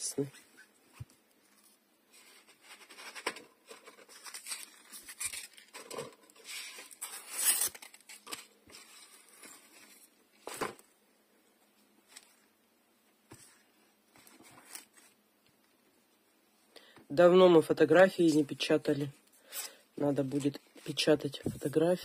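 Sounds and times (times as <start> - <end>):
paper and plastic packaging rustling: 0.9 - 10.9, 13.3 - 15.2.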